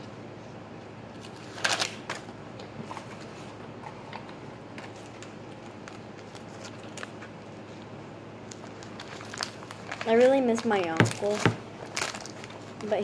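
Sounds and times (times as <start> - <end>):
paper rustling and crinkling: 1.2 - 3.6, 4.8 - 7.8, 8.5 - 13.0.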